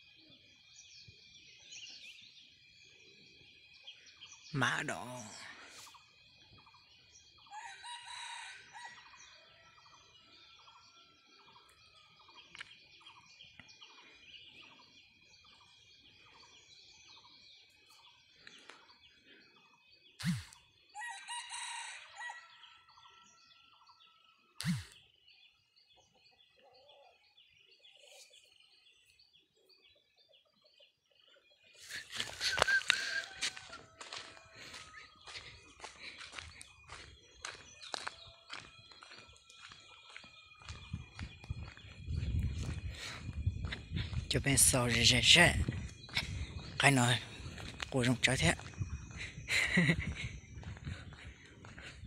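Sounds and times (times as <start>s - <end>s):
rooster crowing: 7.5s - 9.6s, 21.0s - 23.5s, 32.5s - 35.0s
faint bird calls: 17.6s - 21.0s, 24.6s - 25.0s, 31.6s - 42.0s.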